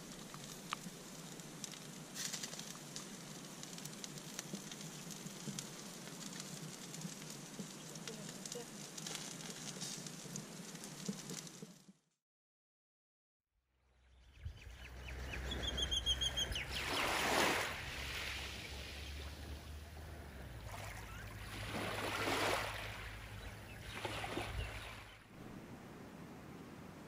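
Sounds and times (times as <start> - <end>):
bird chirping: 14.0 - 17.1
small waves washing on beach: 16.6 - 25.2
low steady rumble: 17.7 - 24.0.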